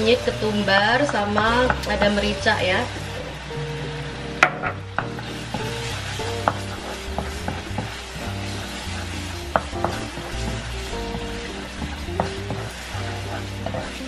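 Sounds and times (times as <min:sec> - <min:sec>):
spice paste sizzling in a pan: 0:00.0 - 0:14.0
spatula tapping a pan: 0:04.4 - 0:08.0, 0:09.4 - 0:14.0.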